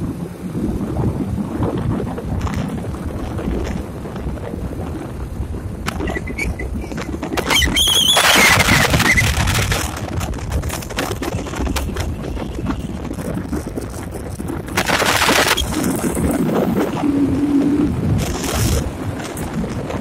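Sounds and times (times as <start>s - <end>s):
car engine and road rumble: 0.0s - 20.0s
rushes of noise: 0.0s - 20.0s
warbling high squeal: 6.0s - 9.5s.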